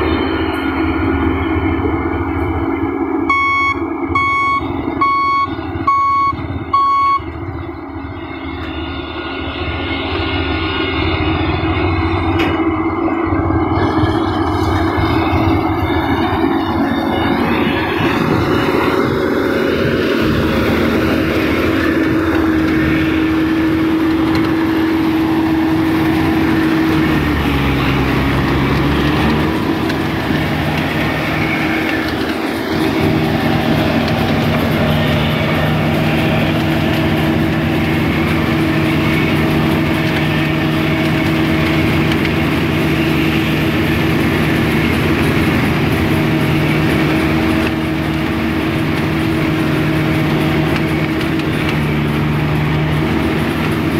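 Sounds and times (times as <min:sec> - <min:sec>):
combine harvester droning: 0:00.0 - 0:53.9.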